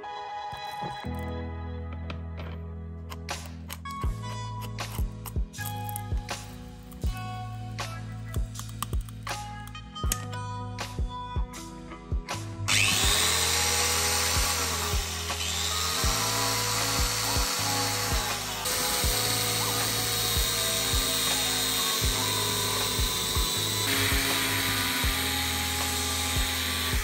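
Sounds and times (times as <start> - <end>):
angle grinder sanding wood: 12.7 - 27.0.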